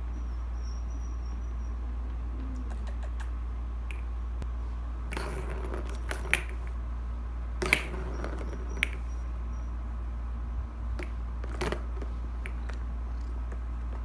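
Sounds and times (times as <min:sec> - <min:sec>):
steady low hum: 0:00.0 - 0:14.0
plastic balls clicking: 0:05.1 - 0:06.7, 0:07.6 - 0:09.1, 0:11.0 - 0:14.0.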